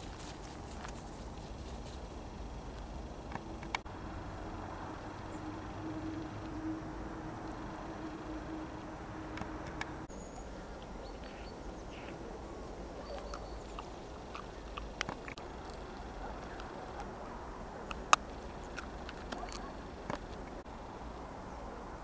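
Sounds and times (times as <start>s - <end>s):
steady low hiss: 0.0s - 22.0s
faint high chirps: 3.4s - 18.7s.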